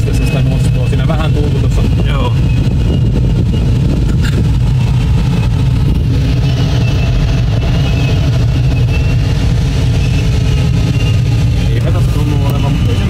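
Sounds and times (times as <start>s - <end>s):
airflow rumble in glider cockpit: 0.0s - 13.0s
wavering variometer tone: 0.0s - 13.0s.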